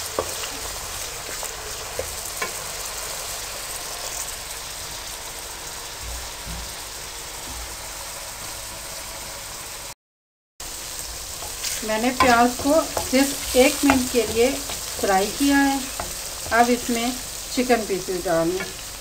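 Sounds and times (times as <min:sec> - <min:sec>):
vegetables sizzling in hot oil: 0:00.0 - 0:10.0, 0:10.6 - 0:19.0.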